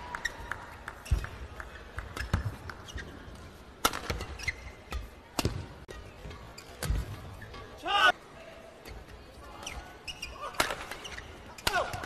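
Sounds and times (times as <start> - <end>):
shoes squeaking on court: 2.0 - 7.8, 8.8 - 11.7
racket striking shuttlecock: 3.8 - 6.0.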